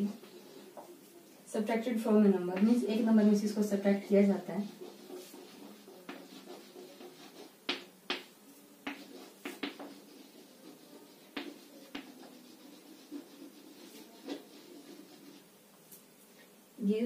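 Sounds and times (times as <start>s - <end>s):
chalk scratching on blackboard: 0.0s - 1.1s, 2.6s - 15.5s
chalk tapping on blackboard: 4.0s - 15.5s.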